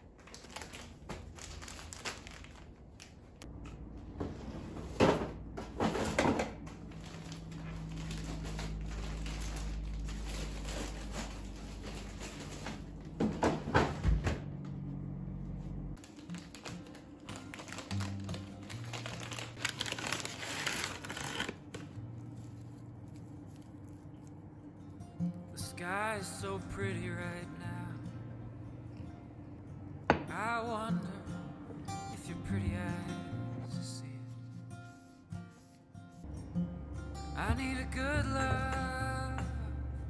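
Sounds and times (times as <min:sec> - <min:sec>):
plastic bags crinkling: 0:00.0 - 0:03.4, 0:06.6 - 0:13.2, 0:16.0 - 0:24.2
plastic net bag crinkling: 0:00.1 - 0:03.4, 0:06.7 - 0:13.0, 0:16.0 - 0:24.0
steady low hum: 0:03.3 - 0:16.0.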